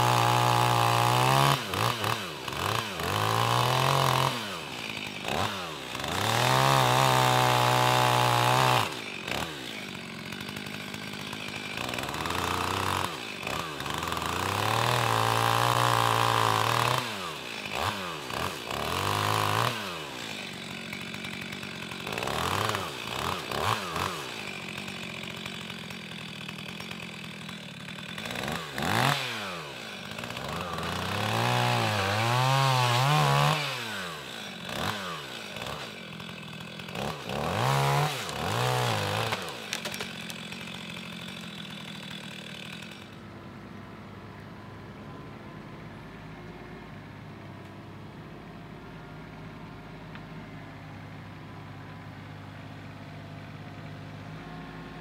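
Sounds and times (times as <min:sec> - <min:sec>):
chainsaw cutting and revving: 0:00.0 - 0:43.3.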